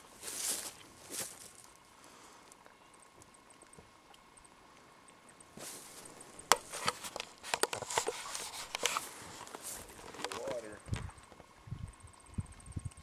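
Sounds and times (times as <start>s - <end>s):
rustling: 5.6s - 11.2s
sharp clicks and cracks: 6.5s - 11.0s.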